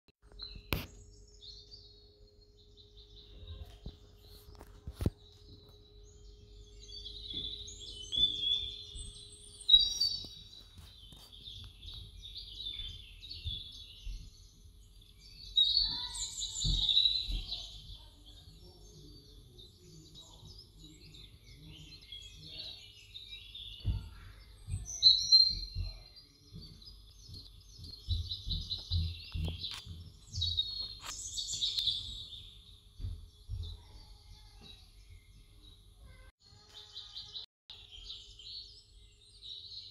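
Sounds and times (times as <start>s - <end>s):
birds chirping and singing: 0.2s - 39.9s
faint low knocks: 23.8s - 30.7s.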